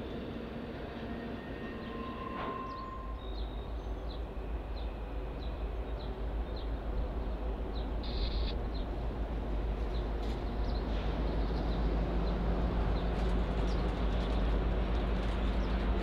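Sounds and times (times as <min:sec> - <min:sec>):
freight train rumbling on rails: 0:00.0 - 0:16.0.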